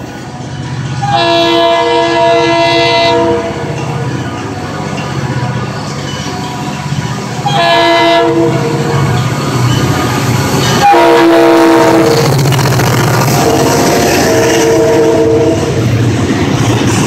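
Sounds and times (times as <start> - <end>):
locomotive horn blasts: 1.0 - 3.7, 7.4 - 8.9, 10.7 - 12.4, 13.3 - 15.8.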